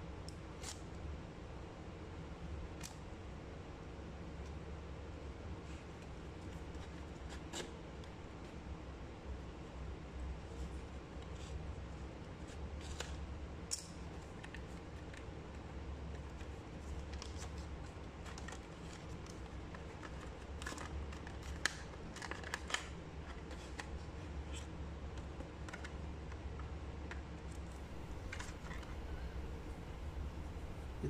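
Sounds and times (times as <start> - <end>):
steady low hum: 26.1 - 31.0.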